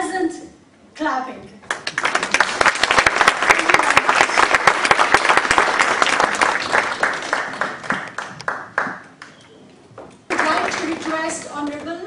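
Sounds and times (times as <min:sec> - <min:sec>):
audience applauding: 0:01.7 - 0:09.5, 0:10.3 - 0:11.5.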